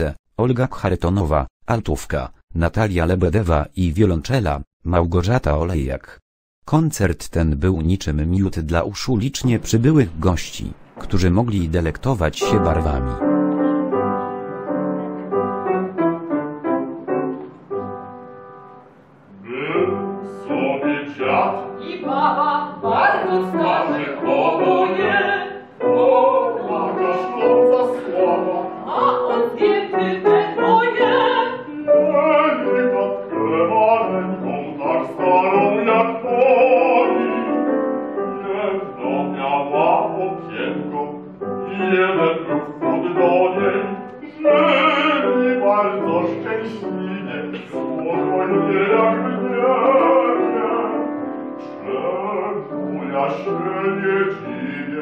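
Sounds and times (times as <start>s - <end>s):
grand piano: 8.0s - 55.0s
operatic duet singing: 19.4s - 55.0s.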